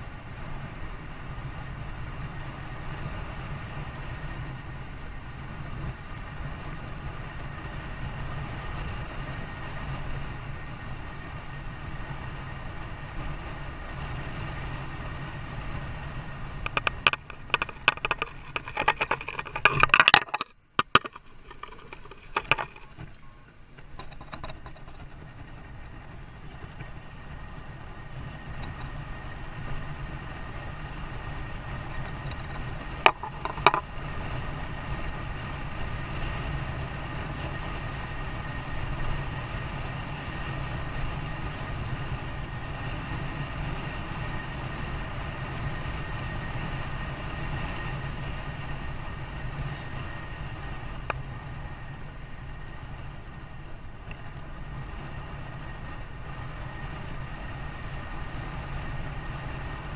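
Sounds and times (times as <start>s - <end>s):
vehicle engine rumble: 0.0s - 59.9s
loud clicks and clatter: 16.6s - 25.3s, 32.0s - 33.9s.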